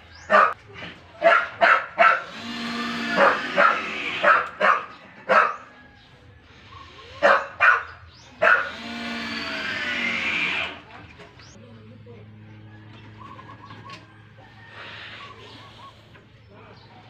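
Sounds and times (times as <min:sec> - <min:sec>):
dog barking: 0:00.3 - 0:00.6, 0:01.2 - 0:02.4, 0:03.1 - 0:05.8, 0:07.2 - 0:08.8
cordless drill driving screw: 0:02.2 - 0:04.2, 0:08.6 - 0:10.8.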